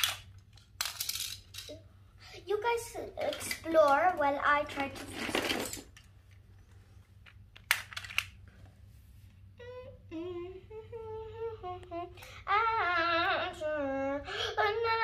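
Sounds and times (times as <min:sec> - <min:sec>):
plastic cube clicks: 0:07.5 - 0:08.4
child humming: 0:09.6 - 0:15.0.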